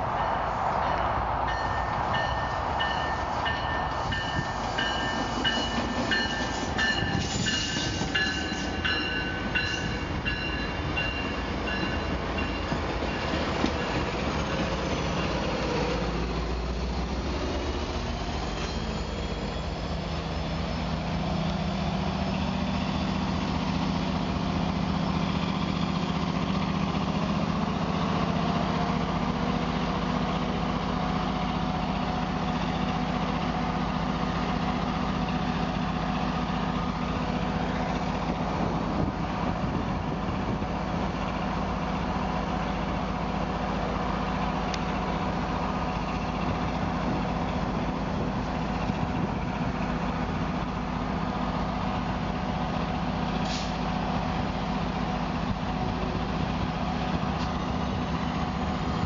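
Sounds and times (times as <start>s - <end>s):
diesel locomotive idling: 0.0s - 59.0s
train clatter: 0.7s - 19.1s.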